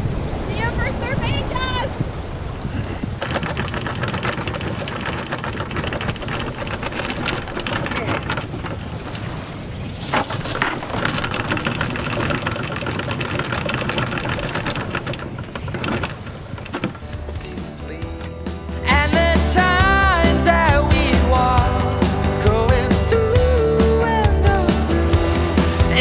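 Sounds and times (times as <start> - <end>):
anchor chain clattering: 3.0 - 18.8
chain clank: 3.2 - 17.1.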